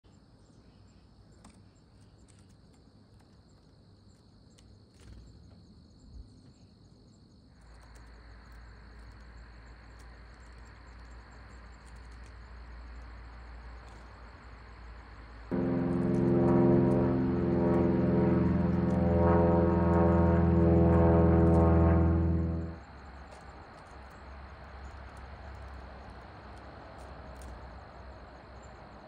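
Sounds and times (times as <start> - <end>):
crickets chirping: 0.2 - 29.0
soft rushing noise: 15.5 - 22.8.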